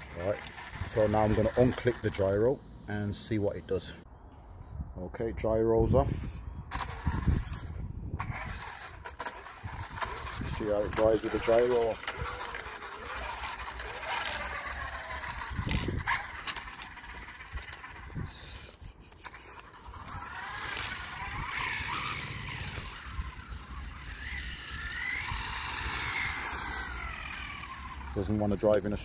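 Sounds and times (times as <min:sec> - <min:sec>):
electric motor whining: 0:00.0 - 0:02.5, 0:06.7 - 0:29.0
rough rushing noise: 0:06.7 - 0:18.6.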